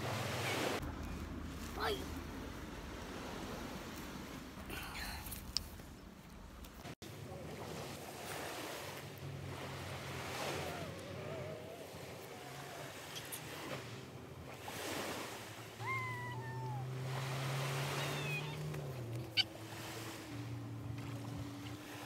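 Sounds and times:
low motor hum: 0:00.0 - 0:04.9, 0:05.7 - 0:22.0
waves washing on shore: 0:00.0 - 0:05.5, 0:07.0 - 0:22.0
short falling calls: 0:15.8 - 0:17.0.

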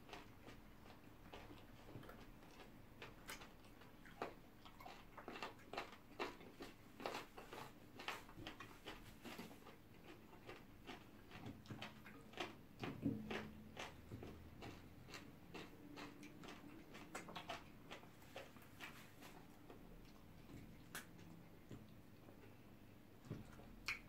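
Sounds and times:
people chewing food: 0:00.0 - 0:24.0.

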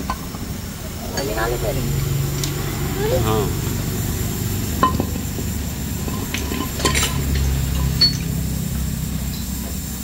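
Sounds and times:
low rumble: 0:00.8 - 0:09.5
metallic clinks of tools: 0:06.0 - 0:08.4.

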